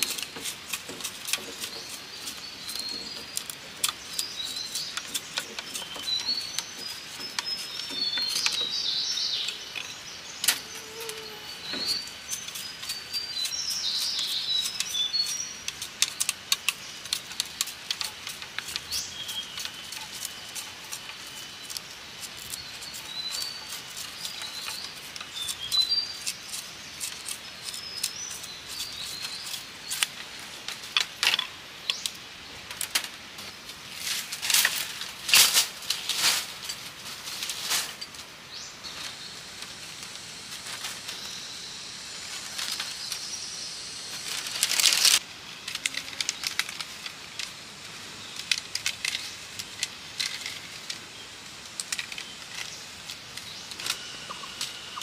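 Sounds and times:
knife scraping bamboo: 0.0 - 31.4
birds chirping: 0.0 - 32.8, 36.2 - 55.0.

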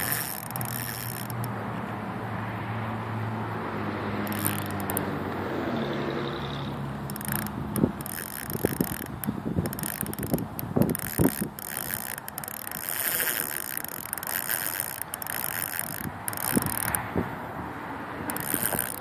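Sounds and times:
fishing reel ratcheting clicks: 0.0 - 1.6, 4.2 - 5.1, 7.1 - 17.2, 18.2 - 19.0.

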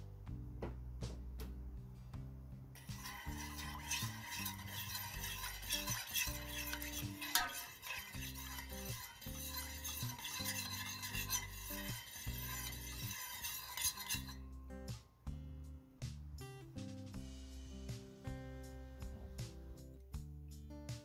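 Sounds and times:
spoon clinking on pot: 2.8 - 14.4
spoon stirring in metal pot: 2.8 - 14.4
soft background music: 14.3 - 21.0.

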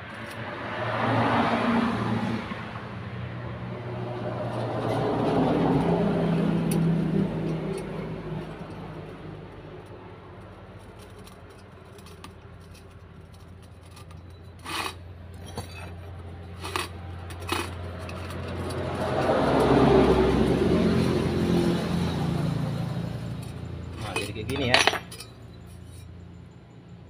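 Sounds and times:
metal clinks and knocks: 4.5 - 9.2, 9.8 - 20.0, 23.2 - 26.8.

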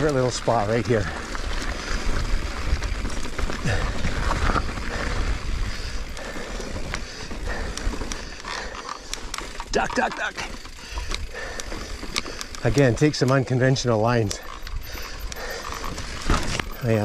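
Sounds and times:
bike clicks and rattles: 0.0 - 17.0
bike tyre rolling on dirt: 0.0 - 17.0
wind rumble on microphone: 1.4 - 8.0.

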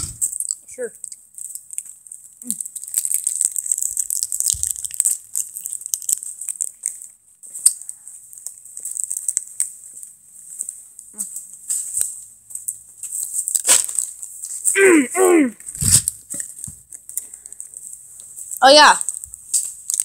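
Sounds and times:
clothing rustling on phone microphone: 15.6 - 16.8.

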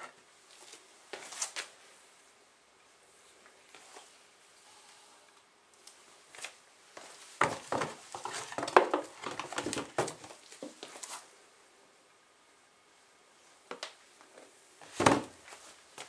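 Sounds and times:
rustling: 5.8 - 11.4.

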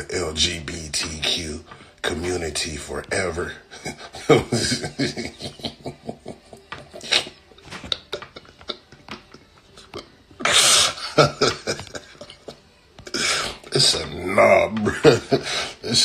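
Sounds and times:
man laughing: 3.6 - 16.0.

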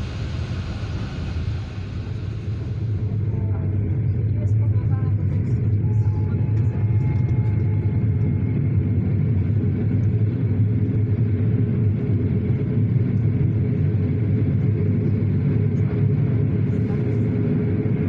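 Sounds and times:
train coaches rolling past: 0.0 - 9.2.

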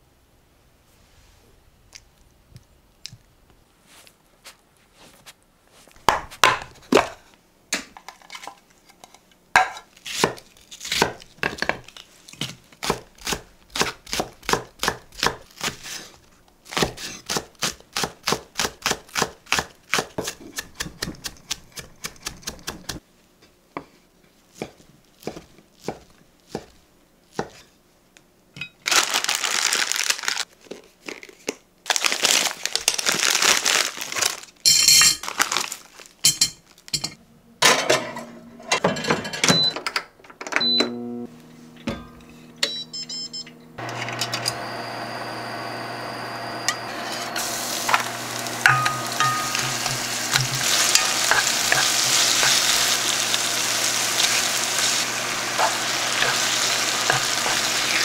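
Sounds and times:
loud crinkling rustle: 28.8 - 34.6, 35.2 - 36.8
knife chopping on cutting board: 48.7 - 52.9.

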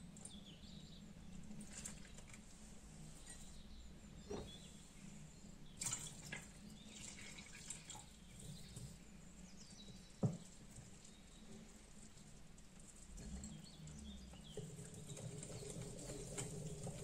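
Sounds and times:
water trickling into batter: 5.6 - 17.0.

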